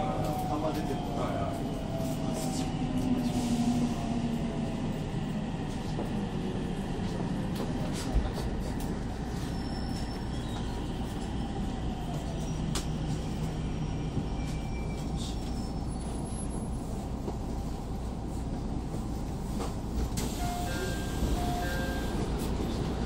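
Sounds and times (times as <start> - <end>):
train cabin rumble and hum: 0.0 - 23.0.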